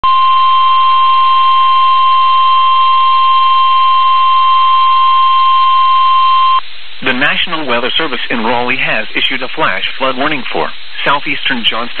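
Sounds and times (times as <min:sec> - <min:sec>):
loud alarm tone: 0:00.0 - 0:06.6
radio hiss: 0:00.1 - 0:12.0.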